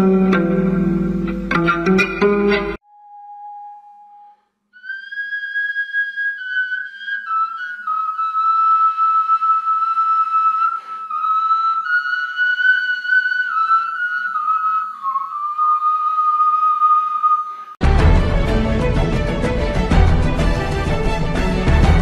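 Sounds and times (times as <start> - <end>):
high whistling melody: 2.7 - 17.8.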